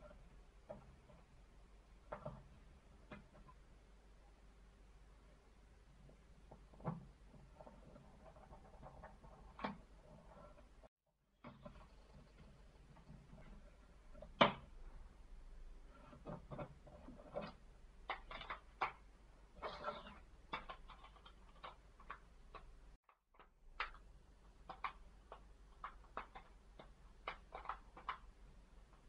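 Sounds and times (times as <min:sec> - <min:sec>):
small plastic clicks and taps: 0:20.5 - 0:29.0.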